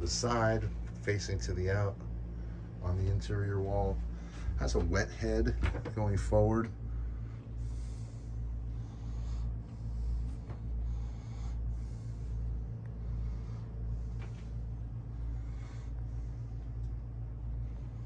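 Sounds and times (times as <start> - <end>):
steady low hum: 0.0 - 18.0
slow breathing close up: 6.8 - 18.0.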